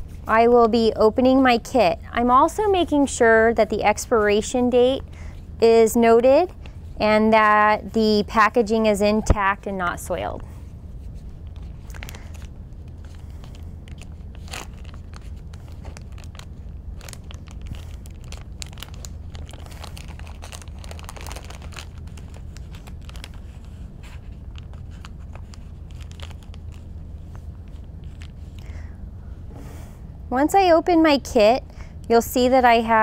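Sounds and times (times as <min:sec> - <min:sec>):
low steady hum: 0:00.0 - 0:33.0
paper and plastic pack crinkling: 0:11.0 - 0:28.8.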